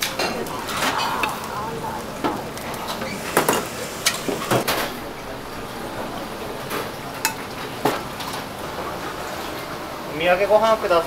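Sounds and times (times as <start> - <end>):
sizzling hiss: 1.2 - 4.6.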